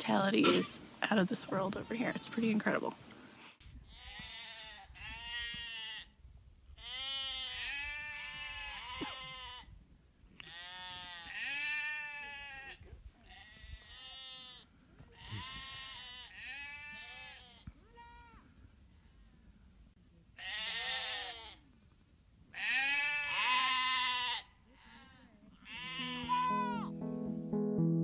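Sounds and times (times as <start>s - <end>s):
sheep and goats bleating: 0.4s - 0.8s, 3.8s - 6.2s, 6.8s - 9.7s, 10.4s - 18.5s, 20.4s - 21.6s, 22.5s - 27.0s.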